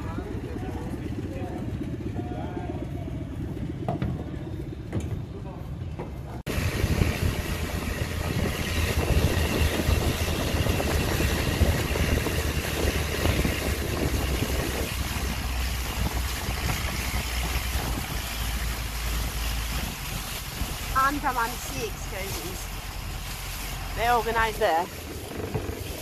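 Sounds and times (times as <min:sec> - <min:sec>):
motorboat engine rumbling: 0:00.0 - 0:26.0
rushing water and air: 0:06.4 - 0:26.0.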